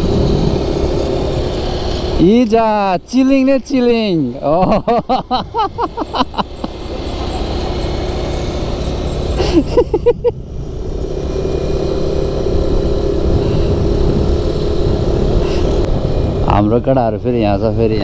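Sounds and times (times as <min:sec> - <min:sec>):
wind on microphone: 0:00.0 - 0:02.2, 0:12.4 - 0:18.0
road rumble: 0:00.0 - 0:18.0
scooter engine drone: 0:00.0 - 0:18.0.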